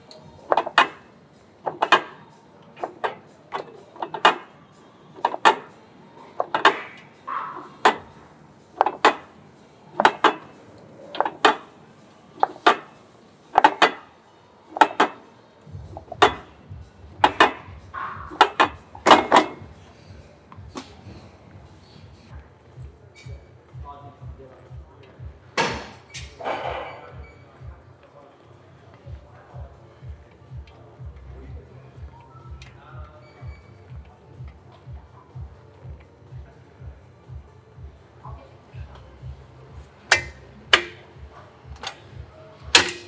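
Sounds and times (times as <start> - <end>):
weight machine metal clanks: 10.0 - 11.7, 14.8 - 15.2, 16.0 - 16.6, 17.2 - 19.7, 42.7 - 43.0.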